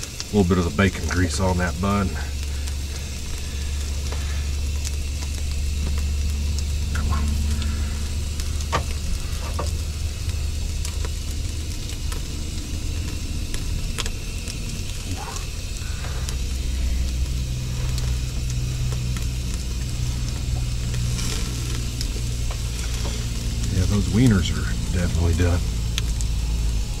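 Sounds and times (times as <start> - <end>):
food sizzling on a grill: 0.0 - 27.0
steady low hum: 0.0 - 27.0
utensils clicking on grill grate: 20.7 - 24.3.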